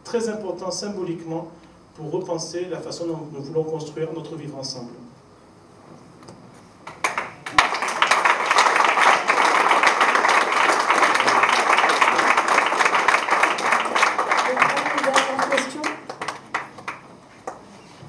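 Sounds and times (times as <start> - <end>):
audience applauding: 6.9 - 17.6.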